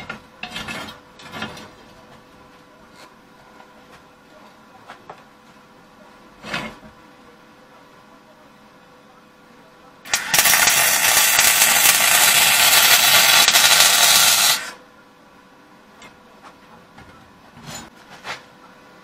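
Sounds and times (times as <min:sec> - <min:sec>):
welding arc crackling: 0:10.1 - 0:14.8.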